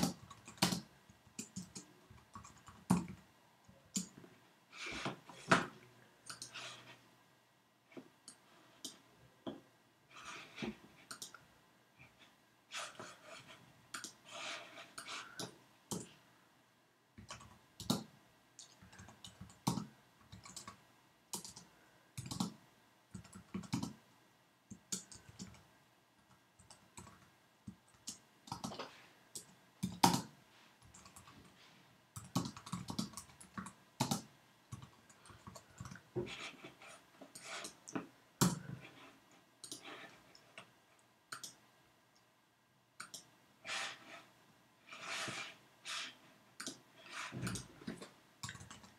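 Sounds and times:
computer keyboard typing: 0.0 - 3.2, 3.9 - 4.2, 6.2 - 6.7, 11.0 - 11.4, 17.2 - 24.0, 24.7 - 25.7, 26.6 - 31.4, 32.2 - 36.6, 39.6 - 40.7, 41.3 - 41.6, 43.0 - 44.0, 44.9 - 47.7, 48.4 - 48.9.

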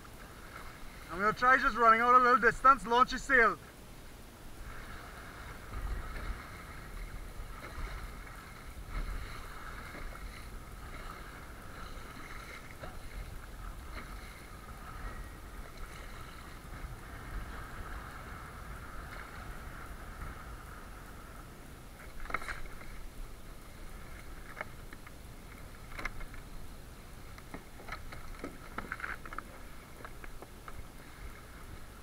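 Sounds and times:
paddle splashing: 0.0 - 32.0
water slapping against kayak hull: 4.6 - 20.6, 22.0 - 23.1.

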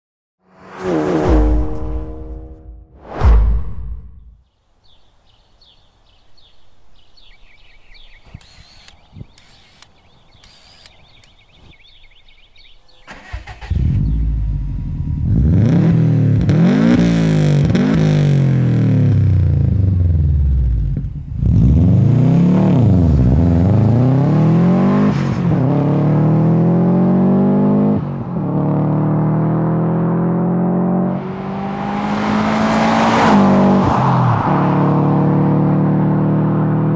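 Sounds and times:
turbocharged car engine revving: 13.1 - 36.9.

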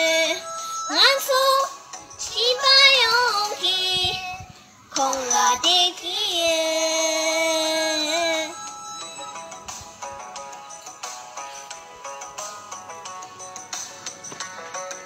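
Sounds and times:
girl singing: 0.0 - 8.7.

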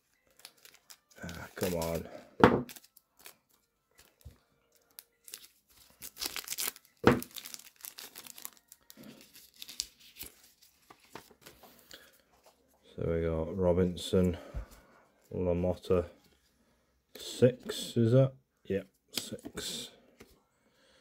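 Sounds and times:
plastic wrapper crinkling and tearing: 0.0 - 12.0
cards rustling: 0.1 - 12.6.

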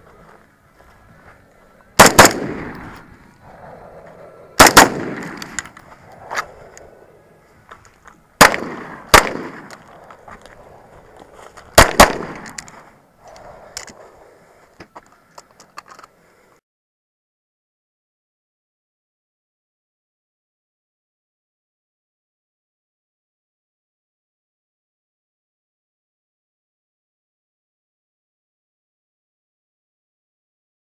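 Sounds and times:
gunshots echoing: 2.0 - 3.1, 4.6 - 5.8, 8.4 - 10.0, 11.7 - 12.8.

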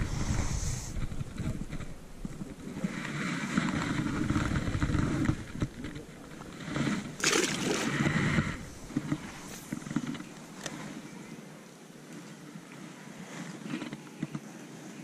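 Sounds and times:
fish splashing in water: 7.0 - 9.8.

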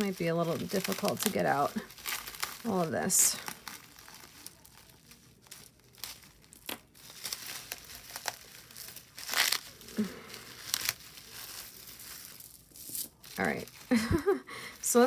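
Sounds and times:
wrapping crinkling and rustling: 0.0 - 15.0.

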